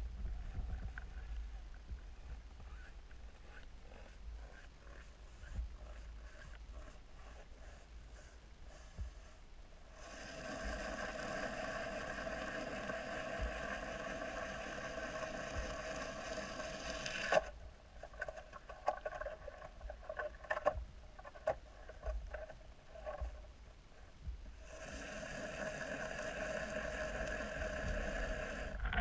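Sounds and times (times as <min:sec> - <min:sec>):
faint clicks and knocks: 0:00.1 - 0:07.5, 0:17.3 - 0:24.6
underwater motor hum: 0:10.0 - 0:23.6, 0:24.2 - 0:29.0.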